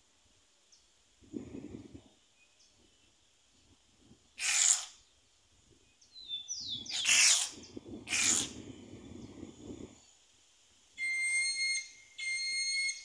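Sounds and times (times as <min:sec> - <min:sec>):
heron calling: 0:04.4 - 0:04.9, 0:06.2 - 0:08.5.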